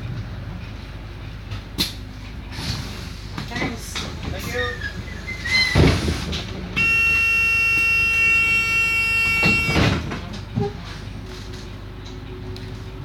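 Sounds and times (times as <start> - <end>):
bus engine idling: 0.0 - 13.0
air hiss of closing doors: 1.8 - 3.5, 4.6 - 6.5
bus door warning buzzer: 6.8 - 10.1.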